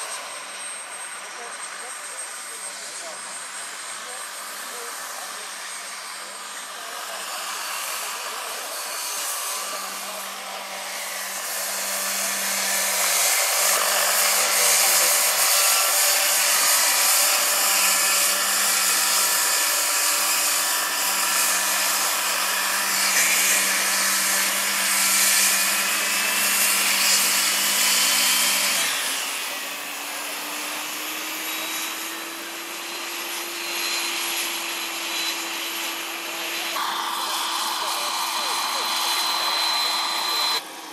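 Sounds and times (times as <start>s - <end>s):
helicopter rotors whirring: 0.0s - 40.9s
electric drive hum: 36.8s - 40.6s.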